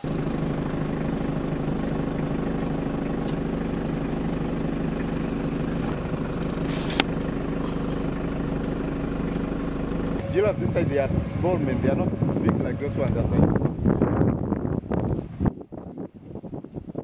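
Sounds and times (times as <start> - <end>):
engine idling: 0.0 - 15.3
brief hiss: 6.6 - 7.1.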